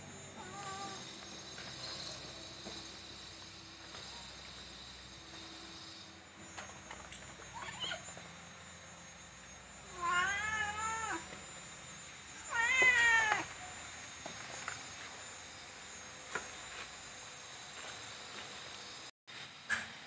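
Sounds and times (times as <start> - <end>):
cat meowing: 0.4 - 1.0, 9.9 - 11.3, 12.4 - 13.6.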